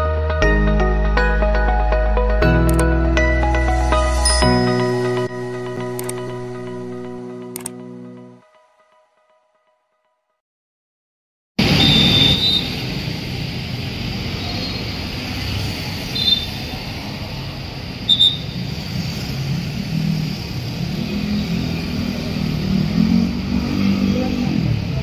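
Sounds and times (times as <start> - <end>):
motorcycle and car engines: 11.6 - 25.0.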